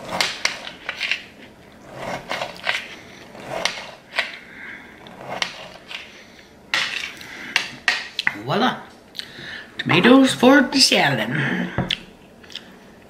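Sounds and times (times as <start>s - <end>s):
knife slicing tomato on cutting mat: 0.0s - 1.1s, 1.9s - 4.4s, 5.1s - 6.1s.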